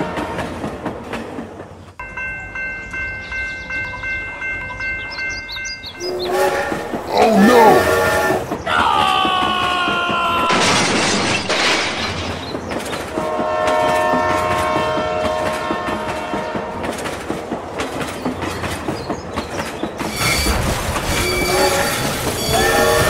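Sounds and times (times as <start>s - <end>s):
train horn blast: 6.0s - 8.6s, 13.2s - 17.0s, 21.2s - 23.0s
wheels clicking on track: 12.3s - 23.0s.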